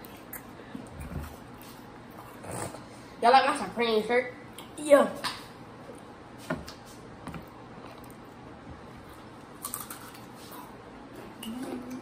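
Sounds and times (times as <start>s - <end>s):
chips being chewed: 9.0s - 10.8s.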